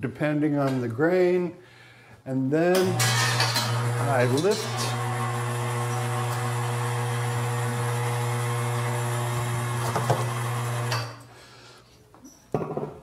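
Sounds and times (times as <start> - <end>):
electric hoist motor humming: 2.8 - 11.3.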